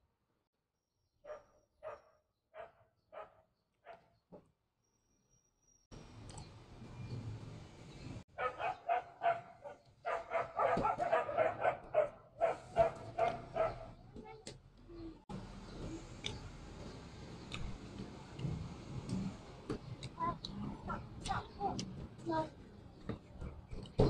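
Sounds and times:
dog barking: 1.2 - 4.1, 8.4 - 14.0.

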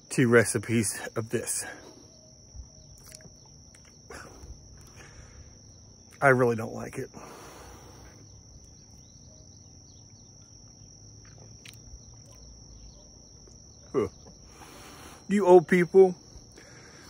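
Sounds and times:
high-pitched insect drone: 0.0 - 17.0
faint bird chirps: 0.8 - 17.0.

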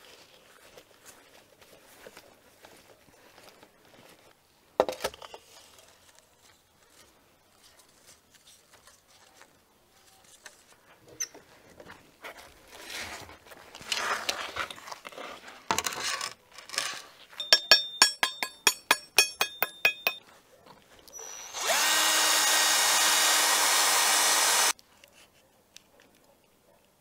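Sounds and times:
tool tapping on salt crust: 17.4 - 20.2
loud mechanical whir: 21.2 - 24.7.

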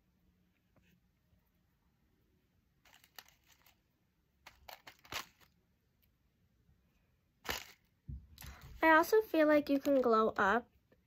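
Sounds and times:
plastic packaging crinkling: 4.5 - 5.6.

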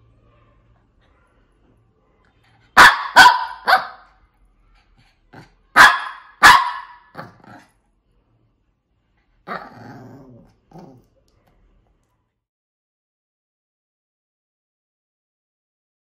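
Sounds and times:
small dog barking: 2.7 - 4.1, 5.4 - 7.6.

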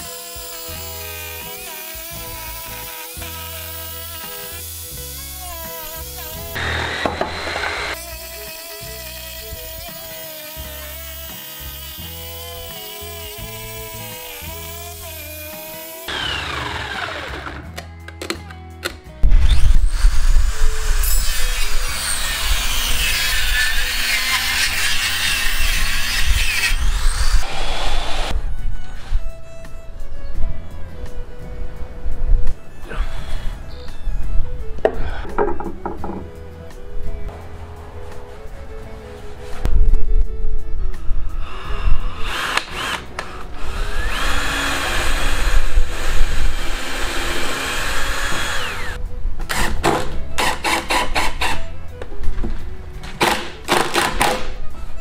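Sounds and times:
saw motor humming: 0.0 - 17.7, 41.5 - 49.0
table saw cutting wood: 0.0 - 17.7, 19.3 - 28.4, 41.6 - 49.0
cordless drill into wood: 5.9 - 17.6, 42.2 - 49.8.

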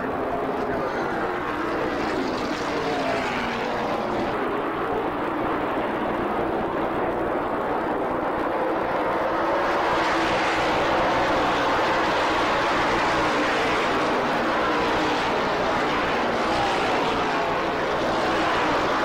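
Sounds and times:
race car engines passing: 0.0 - 19.0.

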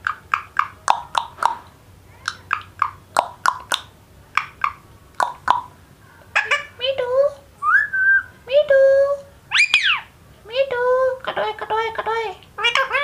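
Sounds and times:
parakeet clicks and pops: 0.0 - 1.6, 2.2 - 5.7.

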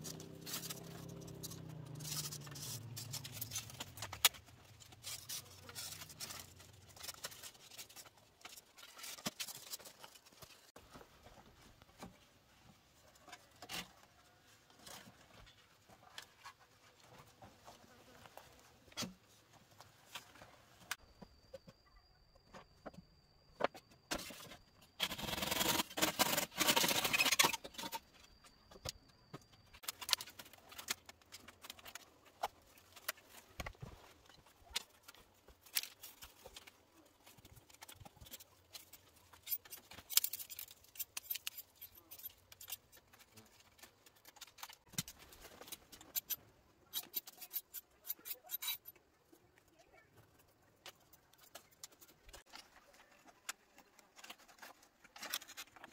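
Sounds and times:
bamboo strips clicking and rustling: 0.0 - 10.7, 25.0 - 29.0, 29.7 - 49.1, 50.3 - 55.9
bamboo pole scraping dirt floor: 24.1 - 28.0.

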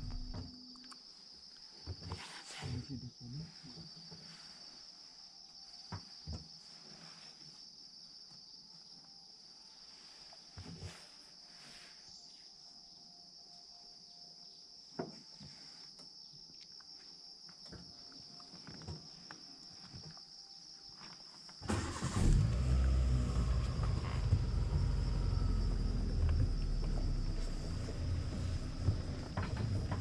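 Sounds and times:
vehicle engine starting and running: 0.0 - 0.4, 21.6 - 30.0
insects droning: 0.0 - 30.0.

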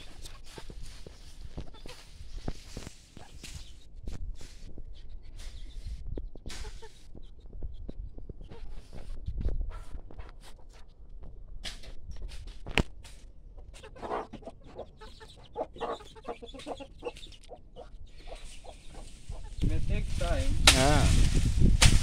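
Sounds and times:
dry stalks and leaves crackling: 0.0 - 4.7, 18.2 - 22.0
chickens clucking: 0.0 - 20.4
sharp snap: 20.6 - 21.0, 21.8 - 22.0.

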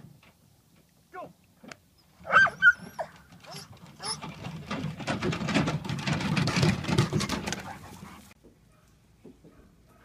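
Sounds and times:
dog paws on wooden dock: 2.3 - 8.6.

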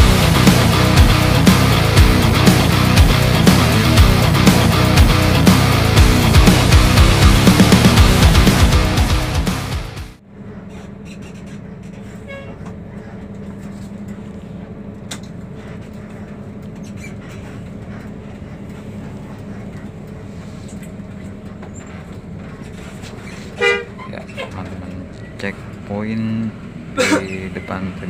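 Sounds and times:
bus engine and road noise: 0.0 - 28.0
bus horn blast: 12.2 - 12.7, 23.5 - 24.6.

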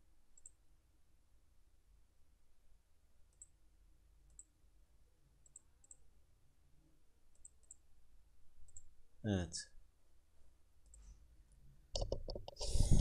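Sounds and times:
faint mouse clicks: 0.4 - 0.6, 3.3 - 3.6, 4.2 - 4.6, 5.4 - 6.1, 7.3 - 7.9, 8.6 - 8.9, 10.8 - 11.2.

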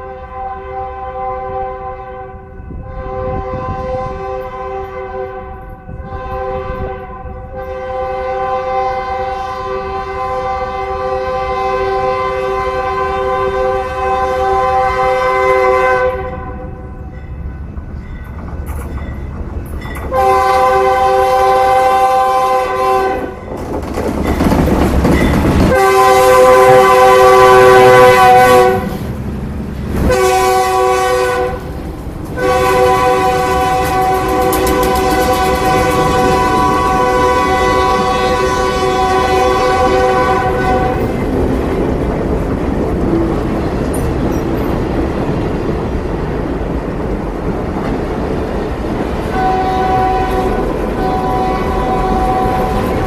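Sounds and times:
locomotive air horn blasts: 0.0 - 16.9, 20.1 - 23.4, 25.7 - 29.2, 30.0 - 31.8, 32.4 - 41.2, 49.3 - 53.0
train engine and wheel noise: 0.0 - 53.0.

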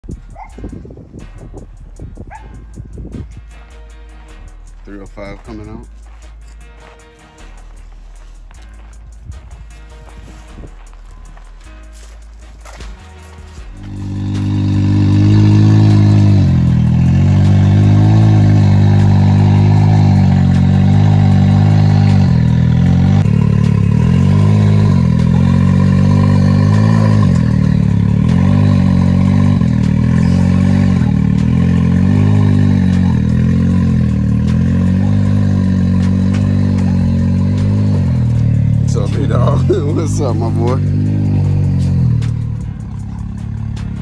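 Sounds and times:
utility vehicle engine running: 5.4 - 44.0.

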